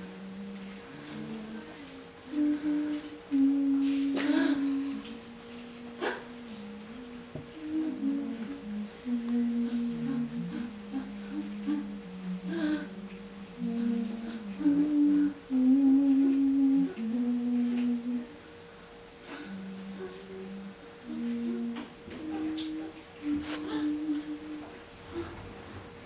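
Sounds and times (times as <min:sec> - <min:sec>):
steady higher held tone: 0:00.0 - 0:25.4
people humming a slow tune: 0:00.0 - 0:26.0.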